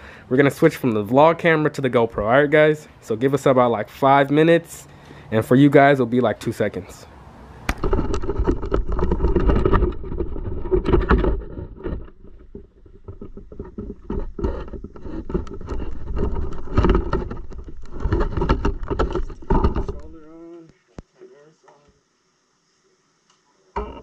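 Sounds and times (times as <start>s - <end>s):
camera handling noise: 7.7s - 9.7s.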